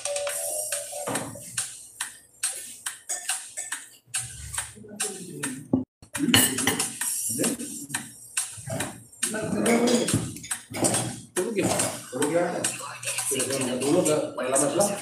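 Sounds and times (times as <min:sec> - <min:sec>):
spoons clinking on steel bowls: 0:02.5 - 0:05.2
background music: 0:06.2 - 0:15.0.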